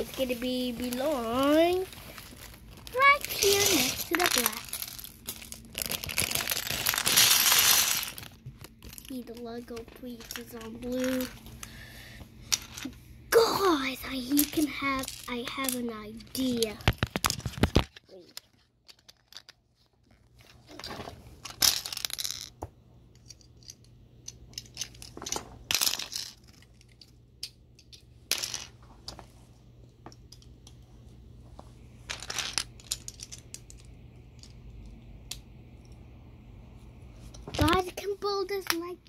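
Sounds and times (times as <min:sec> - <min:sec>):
rustling: 0:00.0 - 0:09.1
plastic pieces clicking and clattering: 0:00.2 - 0:11.7, 0:14.2 - 0:19.6, 0:20.7 - 0:22.5, 0:23.1 - 0:28.7, 0:32.1 - 0:34.6.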